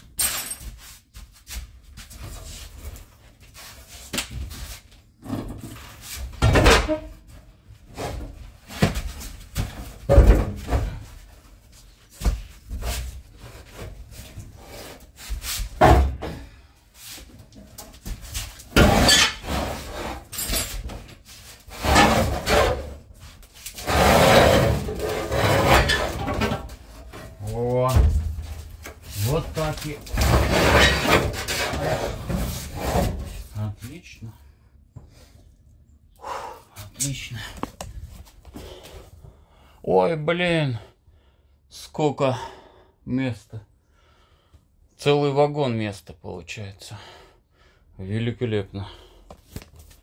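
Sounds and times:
scraping on metal: 0:18.8 - 0:23.0, 0:23.7 - 0:27.2, 0:29.0 - 0:33.4.

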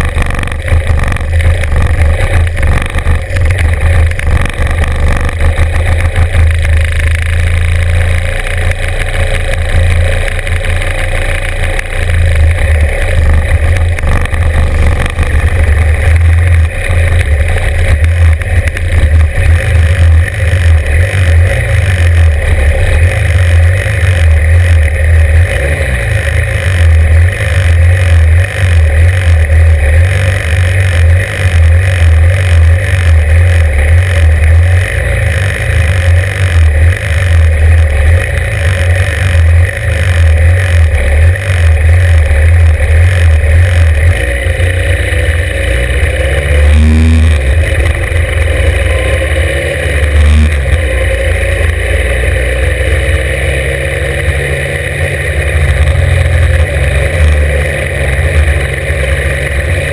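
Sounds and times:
motorcycle engine idling: 0:00.0 - 0:59.9.

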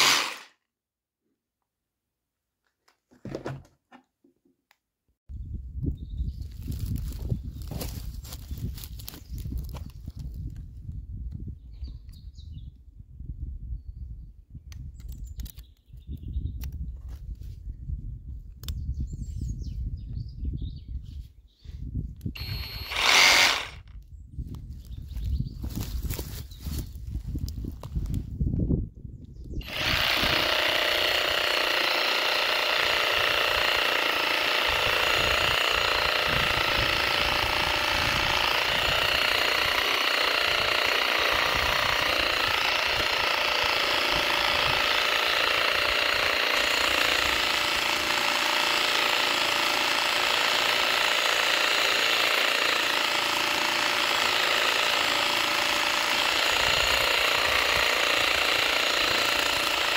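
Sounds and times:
reciprocating saw cutting wood: 0:00.0 - 0:00.6, 0:22.4 - 0:23.8, 0:29.6 - 0:59.9.

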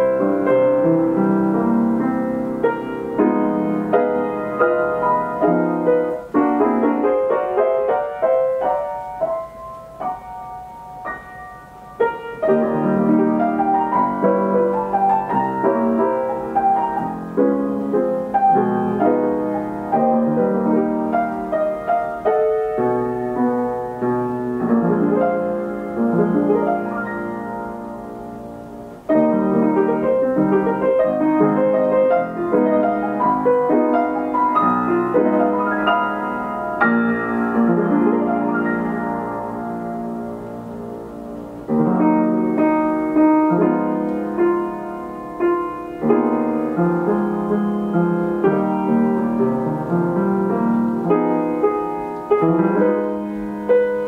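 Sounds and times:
player piano playing chords: 0:00.0 - 0:54.0.

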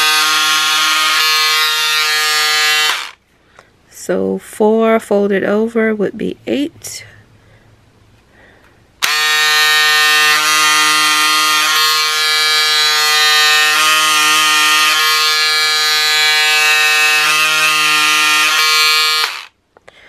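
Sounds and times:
electric scissors buzzing whine: 0:00.0 - 0:03.2, 0:09.0 - 0:19.6.

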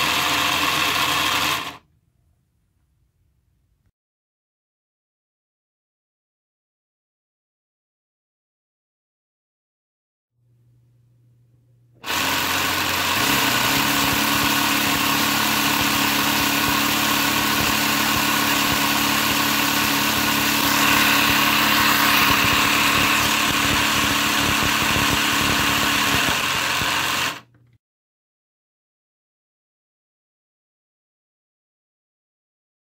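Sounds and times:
electric motor whirring: 0:00.0 - 0:01.8, 0:12.0 - 0:27.6.

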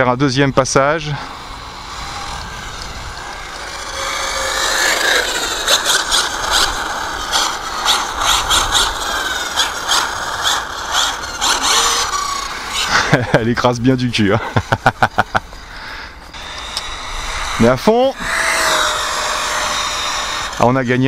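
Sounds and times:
electric motor whining: 0:00.0 - 0:21.0
short rasping bursts: 0:00.0 - 0:21.0.

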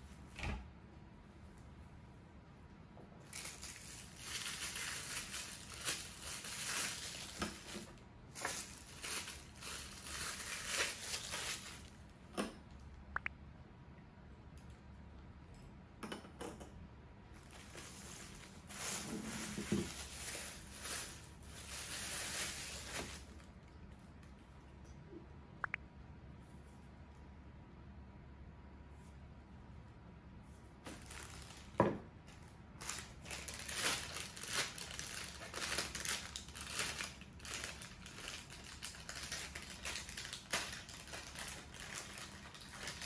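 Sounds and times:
plastic packaging crinkling: 0:03.2 - 0:12.1, 0:17.4 - 0:23.7, 0:30.8 - 0:43.0.

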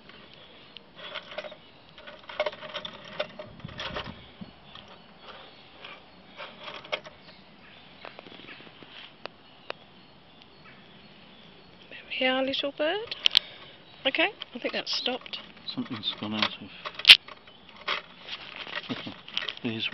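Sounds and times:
clockwork metal parts clicking and rattling: 0:01.0 - 0:07.3, 0:13.0 - 0:19.9.

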